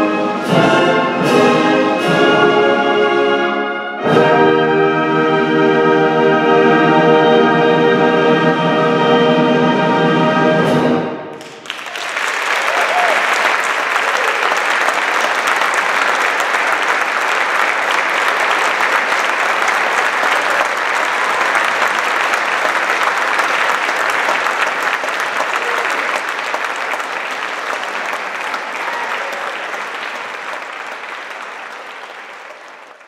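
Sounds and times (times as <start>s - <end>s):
audience applauding: 11.3s - 33.0s.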